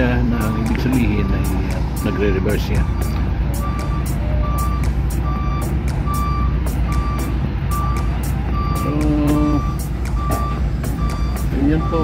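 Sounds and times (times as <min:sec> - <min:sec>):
low engine rumble: 0:00.0 - 0:12.0
reversing alarm beeping: 0:00.0 - 0:12.0.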